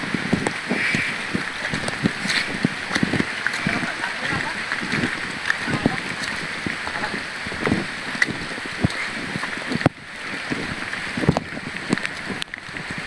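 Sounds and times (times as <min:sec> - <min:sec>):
heavy rain hissing: 0:00.0 - 0:13.0
low thumps and knocks: 0:00.0 - 0:13.0.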